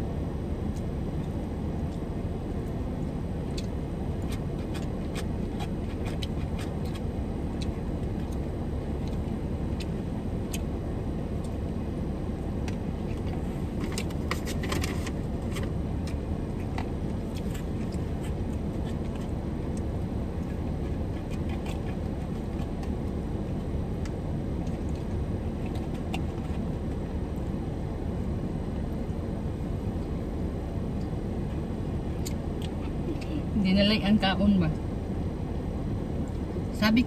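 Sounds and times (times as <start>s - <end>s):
low hum inside car: 0.0s - 37.0s
chewing: 0.7s - 10.8s, 12.6s - 27.5s, 30.9s - 33.4s.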